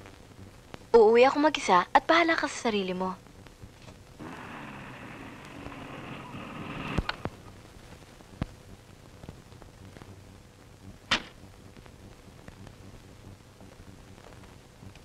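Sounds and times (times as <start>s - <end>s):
car engine and tyres: 4.2s - 7.4s
clicks: 4.2s - 7.4s.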